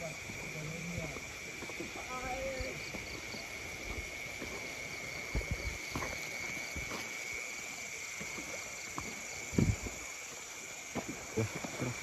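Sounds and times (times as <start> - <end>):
footsteps on muddy ground: 0.0 - 12.0
insects chirping at night: 0.0 - 12.0.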